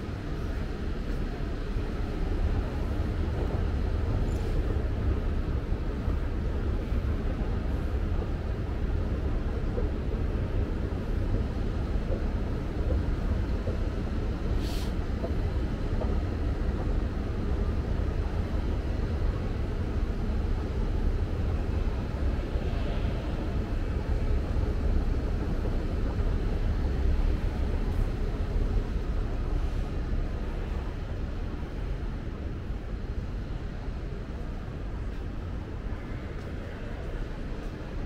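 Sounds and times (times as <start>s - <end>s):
shopping mall ambience rumble: 0.0s - 38.0s
brief hiss: 14.6s - 15.0s.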